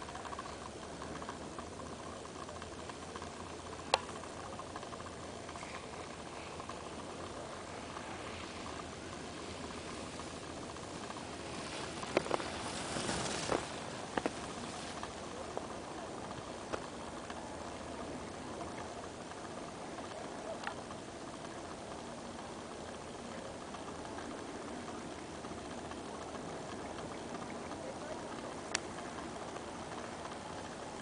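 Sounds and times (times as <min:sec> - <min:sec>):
ski edges scraping snow: 0:07.5 - 0:15.1.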